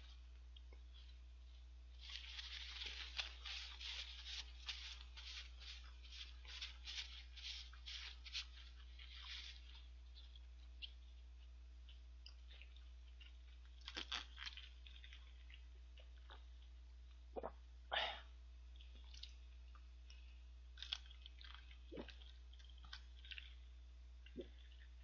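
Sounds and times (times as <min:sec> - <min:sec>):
paper napkin crinkling: 0:01.9 - 0:11.1.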